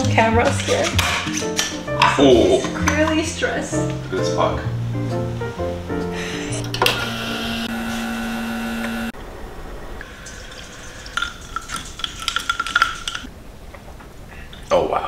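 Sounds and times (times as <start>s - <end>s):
steady hum: 6.2s - 11.1s.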